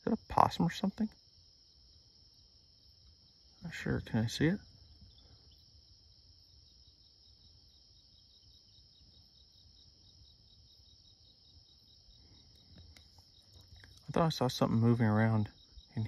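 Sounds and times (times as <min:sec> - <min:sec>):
crickets trilling: 0:00.0 - 0:16.0
insect chirping: 0:00.0 - 0:16.0.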